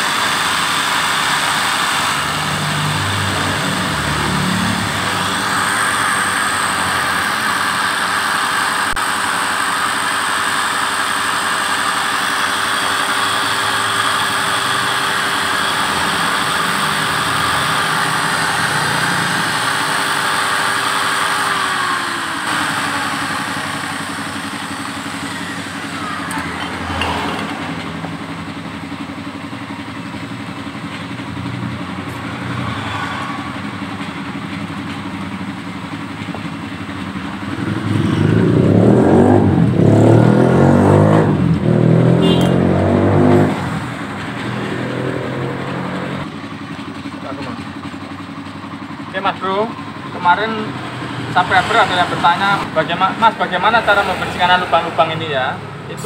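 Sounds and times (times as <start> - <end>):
electric drill motor whine: 0.0 - 29.0, 31.6 - 36.4.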